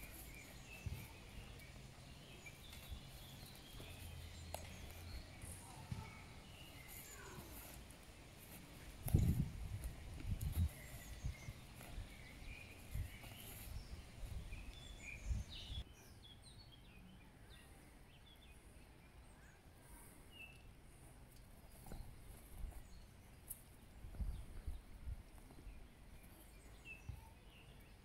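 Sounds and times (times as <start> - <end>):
small birds chirping: 0.0 - 28.0.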